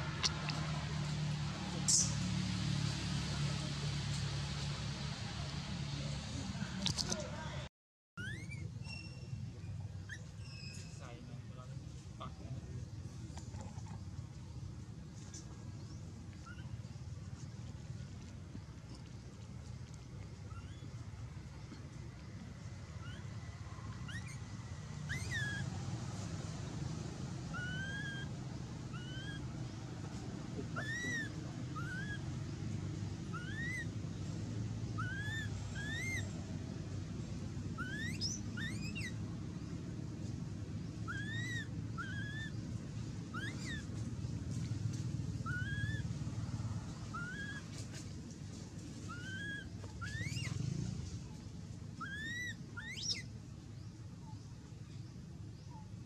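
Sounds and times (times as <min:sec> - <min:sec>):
baby monkey coo calls: 0:08.2 - 0:09.2, 0:16.4 - 0:16.8, 0:22.9 - 0:25.8, 0:27.4 - 0:29.5, 0:30.1 - 0:34.0, 0:34.9 - 0:36.4, 0:37.6 - 0:39.2, 0:40.9 - 0:44.1, 0:45.3 - 0:46.2, 0:46.9 - 0:47.9, 0:49.0 - 0:50.6, 0:51.9 - 0:53.4.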